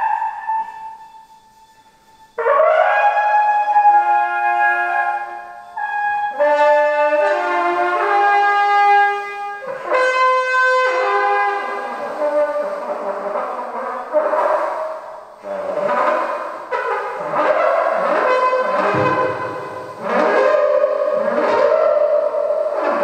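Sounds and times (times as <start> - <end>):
horn held notes: 0.0 - 23.0.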